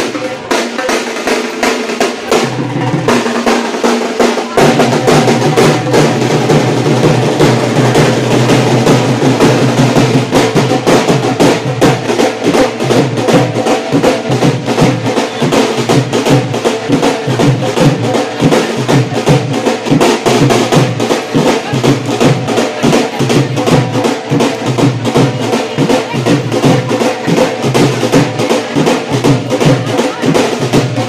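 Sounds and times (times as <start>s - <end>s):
loud music with fast drumming: 0.0s - 31.0s.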